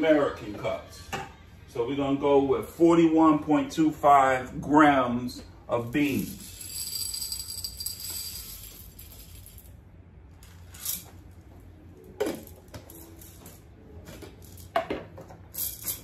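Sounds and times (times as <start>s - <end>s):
coffee beans rattling into bowl: 6.1s - 9.8s.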